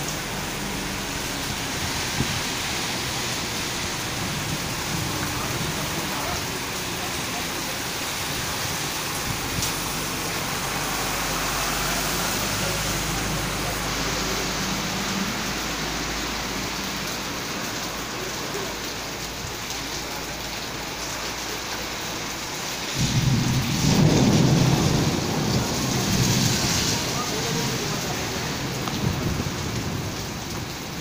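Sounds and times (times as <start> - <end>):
heavy rain falling: 0.0 - 31.0
thunder rumbling: 0.2 - 11.8, 22.9 - 31.0.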